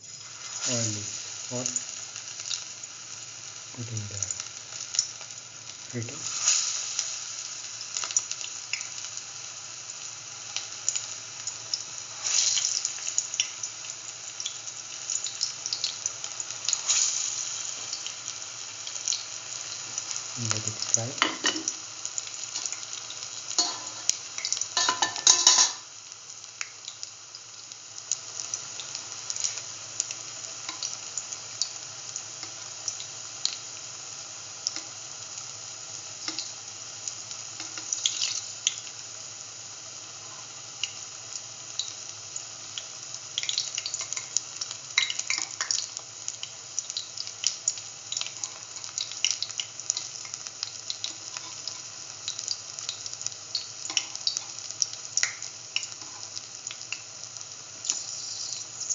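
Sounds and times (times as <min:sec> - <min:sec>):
fritters sizzling in hot oil: 0:00.0 - 0:58.9.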